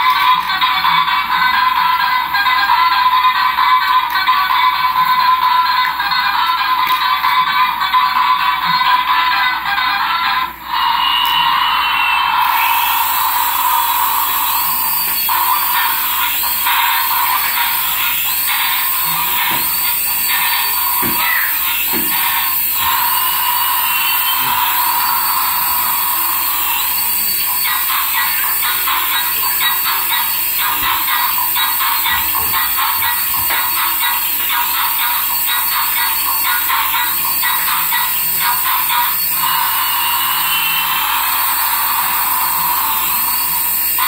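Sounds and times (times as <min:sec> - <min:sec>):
toy electronic sound effects: 0:00.0 - 0:44.0.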